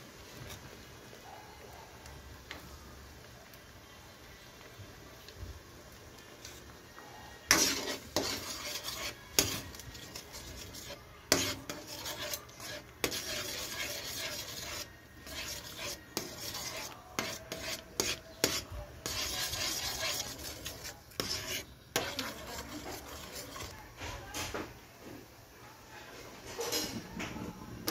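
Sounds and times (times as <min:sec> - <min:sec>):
metal ladle scraping a wok: 0:07.5 - 0:23.8.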